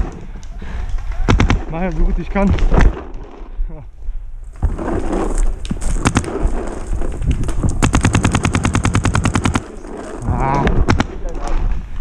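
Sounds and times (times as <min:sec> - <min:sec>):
paintball marker firing: 0:01.2 - 0:01.7, 0:05.8 - 0:06.6, 0:07.7 - 0:10.1, 0:10.7 - 0:11.4.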